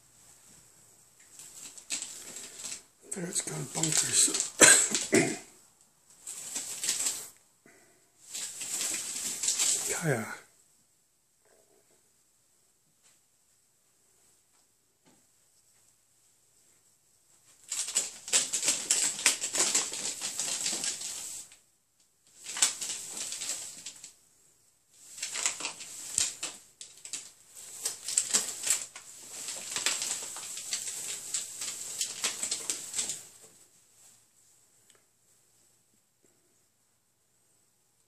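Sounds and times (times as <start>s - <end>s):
foil ducting crinkling and rattling: 1.3s - 5.4s, 6.2s - 7.3s, 8.2s - 10.3s, 17.6s - 21.6s, 22.3s - 24.2s, 25.0s - 33.5s.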